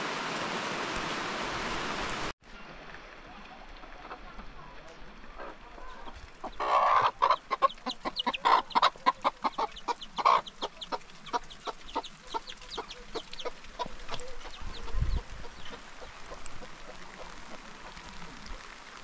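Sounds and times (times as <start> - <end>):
chicken clucking: 3.8 - 18.0.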